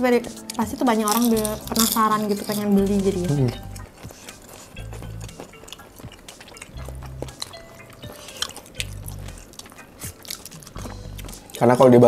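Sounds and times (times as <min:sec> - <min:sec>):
soft background music: 0:00.0 - 0:12.0
wet chewing: 0:00.3 - 0:11.8
spoons clicking against ceramic bowls: 0:00.4 - 0:11.4.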